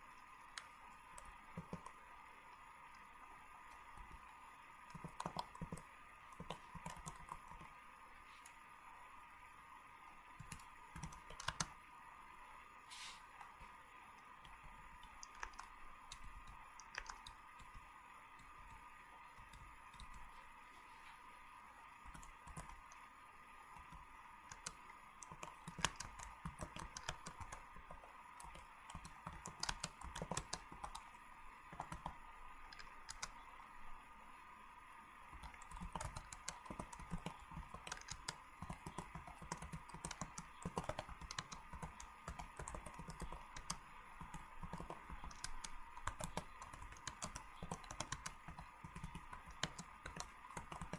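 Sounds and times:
faint clicking and tapping: 0.0s - 8.7s, 10.0s - 11.9s, 13.3s - 50.9s
faint steady hum: 0.0s - 50.9s.

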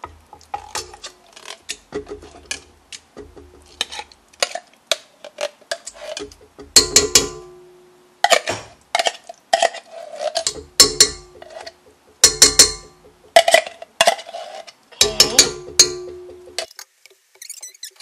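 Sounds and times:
metal bowl ringing: 6.8s - 7.7s, 12.2s - 13.1s, 15.0s - 16.6s
tin can clanking on metal bowl: 8.2s - 14.4s, 15.0s - 16.7s.

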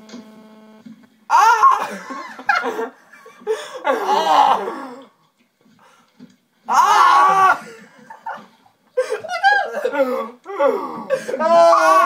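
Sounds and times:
electrical hum: 0.0s - 6.0s
boys laughing: 1.6s - 4.4s, 7.1s - 12.0s.

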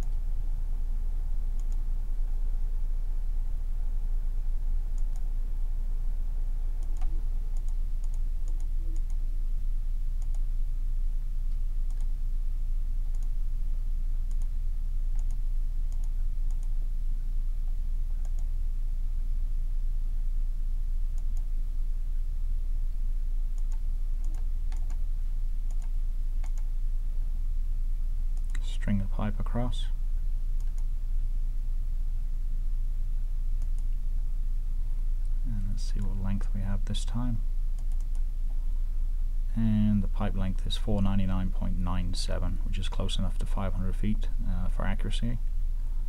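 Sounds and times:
low hum: 0.0s - 46.0s
computer mouse clicking: 1.6s - 1.8s, 4.9s - 5.3s, 6.8s - 9.2s, 10.2s - 10.4s, 11.9s - 12.1s, 13.1s - 13.3s, 14.3s - 14.5s, 15.1s - 16.7s, 18.2s - 18.5s, 23.6s - 25.0s, 25.7s - 26.7s, 30.6s - 30.9s, 33.6s - 34.0s, 37.8s - 38.3s.

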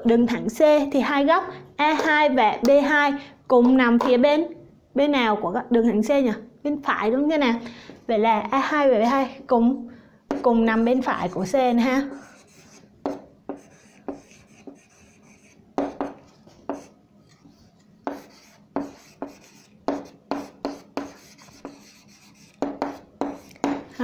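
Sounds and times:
pen tapping and scratching: 12.4s - 23.9s.

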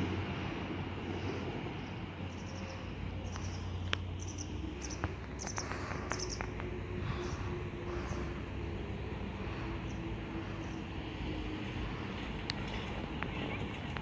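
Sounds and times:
steady low rumble: 0.0s - 14.0s
small birds chirping: 2.2s - 8.4s.

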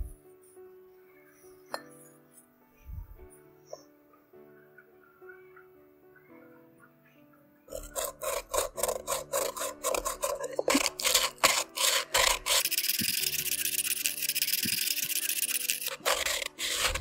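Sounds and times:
hand sanding scratchy strokes: 7.7s - 17.0s.

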